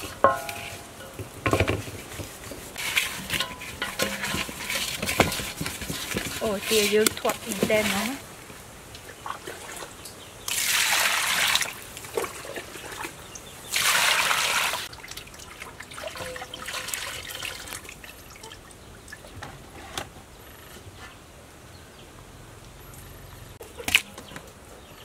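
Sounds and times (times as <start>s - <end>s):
water dripping: 3.4s - 19.4s
water pouring into metal basin: 10.5s - 11.8s, 13.7s - 18.6s.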